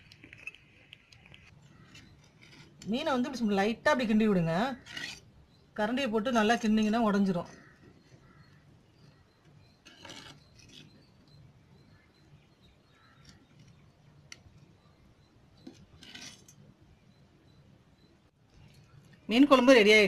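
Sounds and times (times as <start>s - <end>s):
ladle scraping clay pot: 4.8s - 5.3s, 9.8s - 11.0s.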